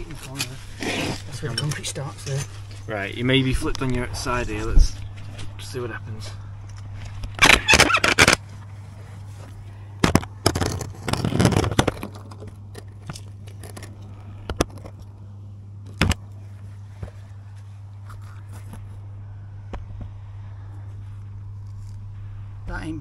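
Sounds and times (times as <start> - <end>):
steady low hum: 0.0 - 23.0
phone scraping against brick: 0.6 - 1.8, 10.1 - 15.0.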